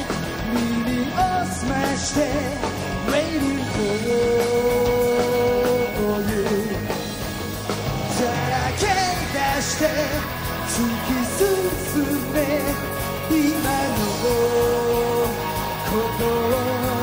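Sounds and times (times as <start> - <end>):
drums: 0.0 - 17.0
pop rock band playing: 0.0 - 17.0
man singing into microphone: 0.3 - 7.2, 8.0 - 17.0.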